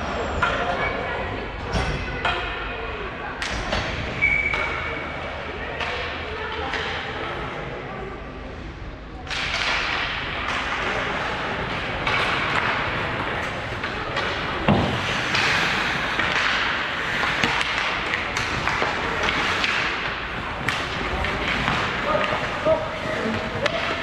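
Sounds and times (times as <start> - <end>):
sticks and puck knocking: 11.7 - 24.0.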